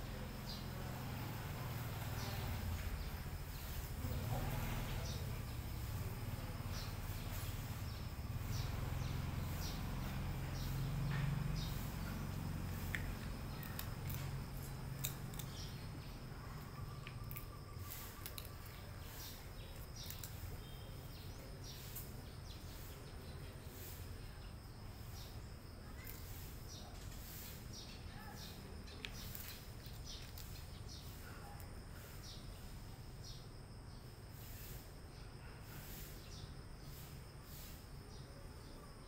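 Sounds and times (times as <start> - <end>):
faint background noise: 0.0 - 39.0
cat chewing crunchy food: 12.6 - 15.9.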